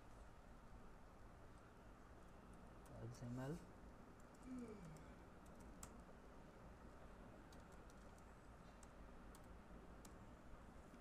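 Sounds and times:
low steady hiss: 0:00.0 - 0:11.0
computer keyboard keystrokes: 0:07.5 - 0:10.2.

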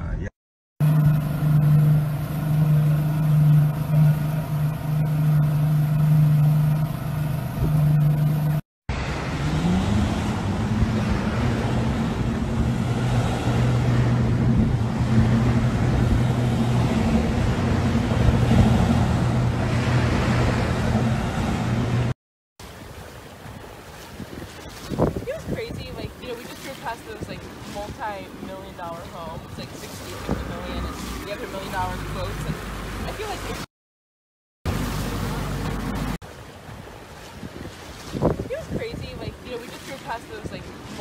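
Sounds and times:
motorboat engine running: 0:00.8 - 0:33.7, 0:34.7 - 0:41.0
water rushing: 0:00.8 - 0:33.7, 0:34.7 - 0:41.0
wind rushing: 0:37.4 - 0:39.3.

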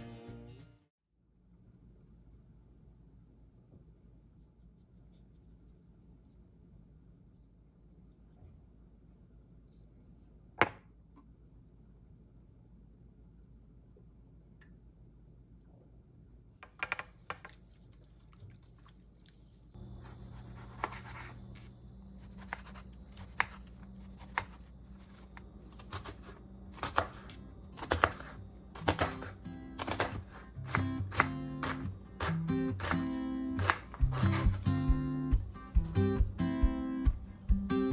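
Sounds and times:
low hum: 0:19.7 - 0:28.8
knife chopping on cutting board: 0:20.0 - 0:35.0.

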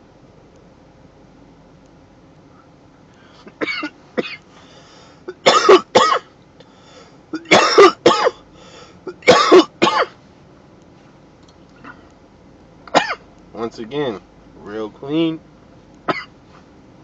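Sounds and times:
man coughing: 0:03.5 - 0:04.4, 0:05.3 - 0:06.3, 0:07.3 - 0:08.5, 0:09.1 - 0:10.2, 0:12.9 - 0:13.2, 0:16.1 - 0:16.3.

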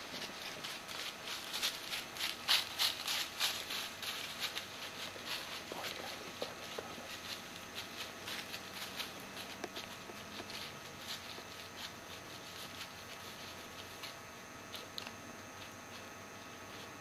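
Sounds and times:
dry leaves crackling: 0:00.0 - 0:17.0.

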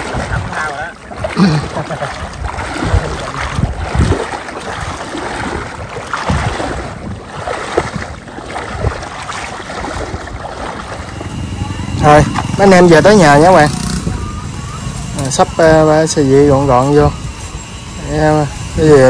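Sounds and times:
low rumbles: 0:00.0 - 0:19.0
water sloshing: 0:00.0 - 0:19.0
wind buffeting microphone: 0:00.0 - 0:19.0.

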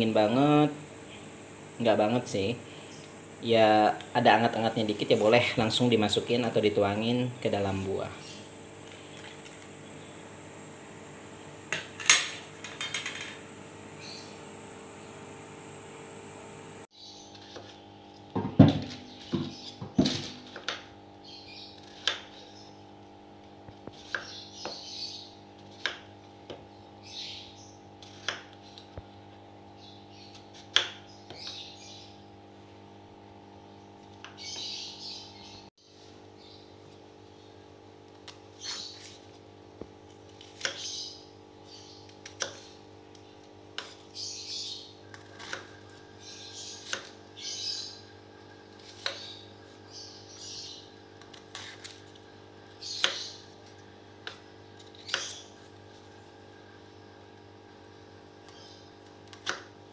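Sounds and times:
steady hum: 0:00.0 - 0:16.9
birds chirping: 0:00.0 - 0:17.8, 0:24.1 - 0:25.4, 0:26.7 - 0:27.8, 0:31.0 - 0:32.2, 0:33.6 - 0:35.7, 0:36.3 - 0:37.6, 0:40.6 - 0:43.4, 0:44.1 - 0:48.1, 0:48.8 - 0:51.7, 0:52.8 - 0:53.5, 0:58.5 - 0:58.9
knife chopping on wooden board: 0:18.4 - 0:20.9, 0:21.8 - 0:22.4, 0:30.5 - 0:31.6.

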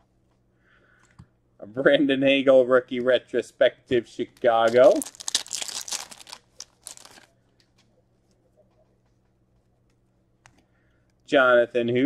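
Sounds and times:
faint steady hum: 0:00.0 - 0:12.0
trading cards shuffling: 0:04.4 - 0:07.8.

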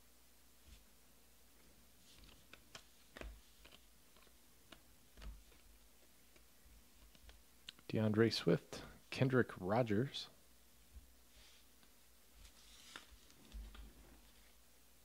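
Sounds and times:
cards being flipped: 0:02.0 - 0:07.9, 0:11.8 - 0:14.4.

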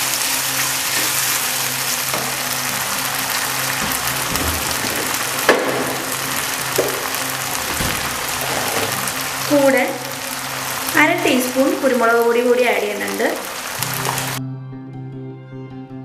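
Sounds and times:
onions sizzling in a frying pan: 0:00.0 - 0:07.6, 0:08.2 - 0:14.4
wooden spatula knocking on pan: 0:02.1 - 0:09.1.

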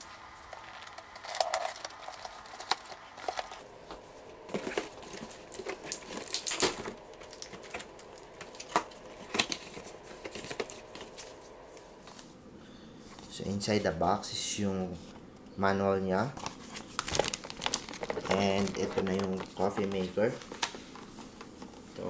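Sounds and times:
cardboard flaps rustling: 0:00.8 - 0:12.4, 0:16.2 - 0:22.0.

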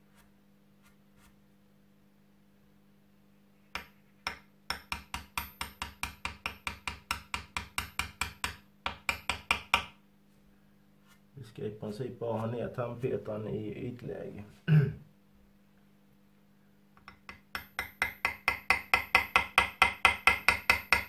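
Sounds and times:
hammer tapping metal punch: 0:03.7 - 0:10.0, 0:17.0 - 0:21.0.

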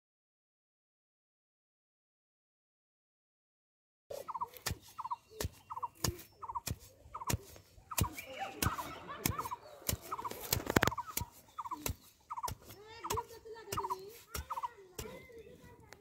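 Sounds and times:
stick knocking into ground: 0:04.1 - 0:15.4.

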